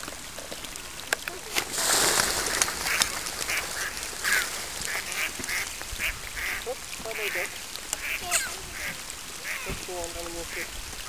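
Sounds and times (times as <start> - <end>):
birds calling harshly: 1.4 - 10.8.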